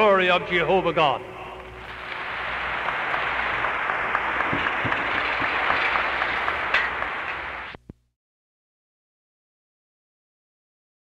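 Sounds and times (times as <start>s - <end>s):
audience applauding: 1.5s - 7.8s.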